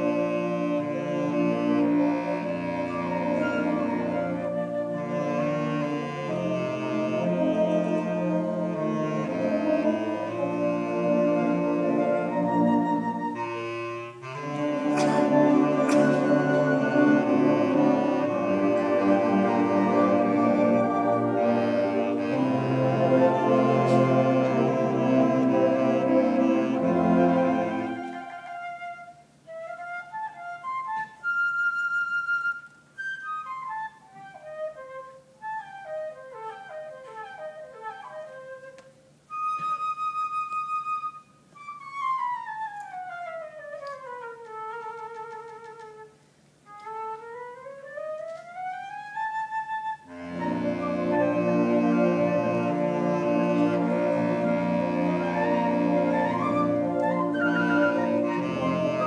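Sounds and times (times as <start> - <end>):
band playing: 0.0 - 28.6, 50.1 - 59.0
solo flute: 0.0 - 59.0.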